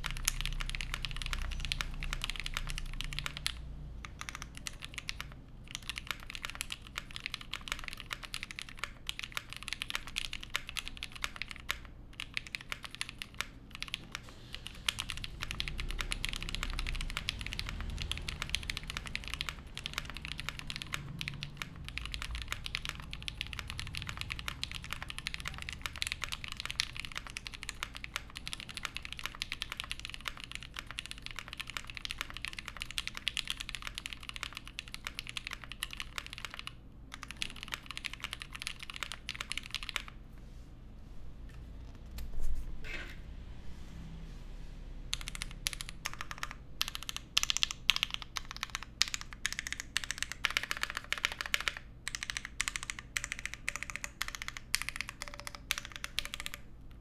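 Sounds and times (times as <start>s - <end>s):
fast typing on mechanical keyboard: 0.0s - 40.2s, 45.1s - 57.0s.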